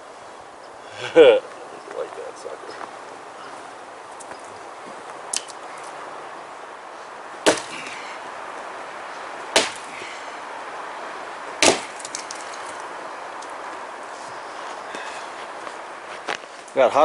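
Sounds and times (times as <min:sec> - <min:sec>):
axe chopping firewood: 0:07.4 - 0:08.1, 0:09.5 - 0:10.2, 0:11.6 - 0:12.6.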